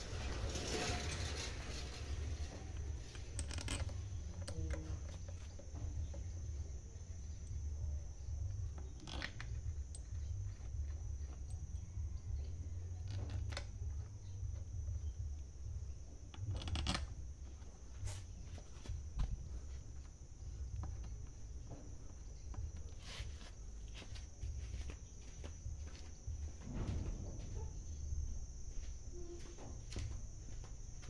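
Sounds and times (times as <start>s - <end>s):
metal parts clicking and knocking: 0.2s - 6.6s, 8.4s - 15.5s, 16.2s - 17.6s
steady low rumble: 1.9s - 31.0s.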